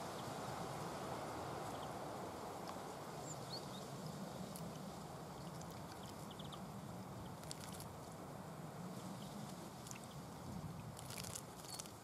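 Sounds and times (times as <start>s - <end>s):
birds splashing in water: 10.9s - 12.0s.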